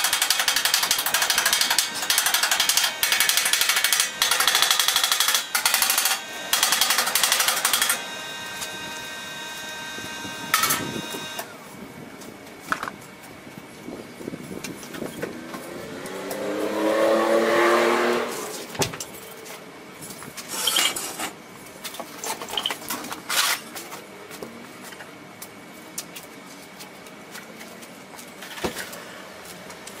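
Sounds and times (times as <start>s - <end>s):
vehicle driving past: 15.6s - 18.5s.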